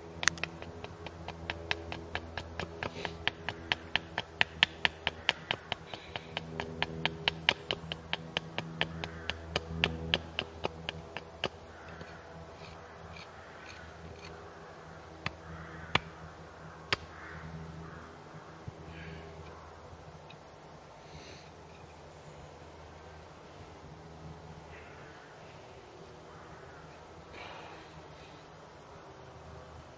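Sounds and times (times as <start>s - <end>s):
sharp knocks: 0.2s - 12.1s
hatchet chopping wood: 0.2s - 12.2s, 16.9s - 17.1s.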